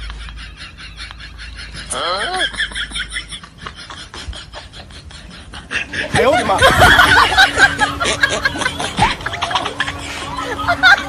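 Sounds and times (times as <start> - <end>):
loud snickering laughter: 0.0 - 11.0
steady held note: 5.9 - 11.0.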